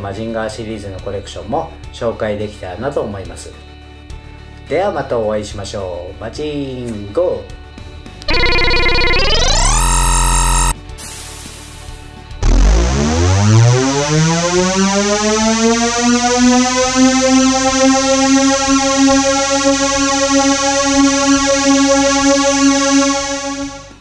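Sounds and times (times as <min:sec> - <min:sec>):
synthesizer tone rising in pitch: 0:08.3 - 0:10.8, 0:12.4 - 0:24.0.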